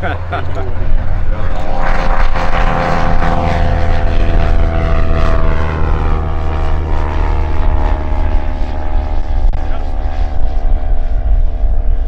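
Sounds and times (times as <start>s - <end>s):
propeller plane flying past: 0.0s - 12.0s.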